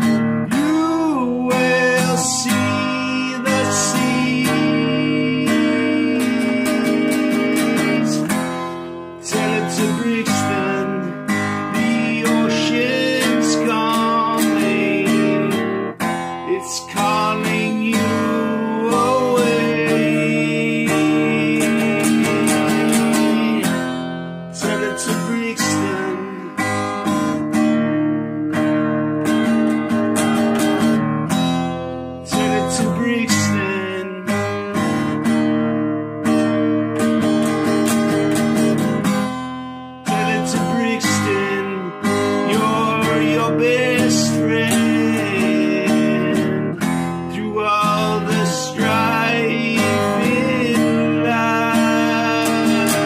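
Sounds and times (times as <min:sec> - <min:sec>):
strummed acoustic guitar: 0:00.0 - 0:53.0
sliding melody line: 0:37.5 - 0:53.0.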